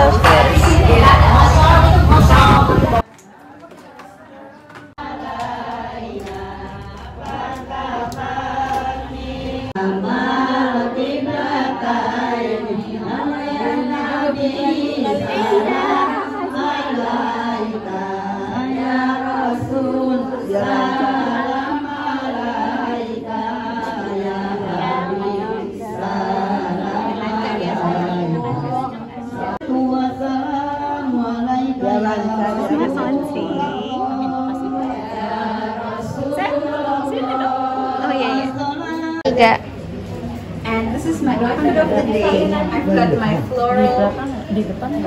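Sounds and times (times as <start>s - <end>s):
low rumble: 0.0s - 3.0s
women chanting in unison: 0.0s - 39.6s, 40.6s - 45.0s.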